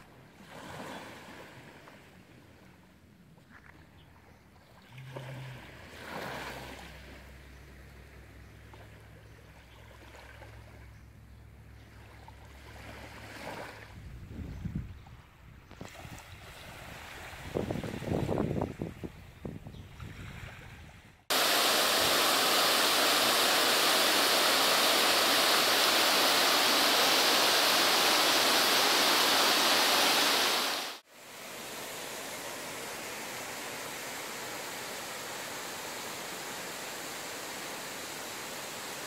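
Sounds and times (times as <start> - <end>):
waterfall rushing: 21.3 - 39.0.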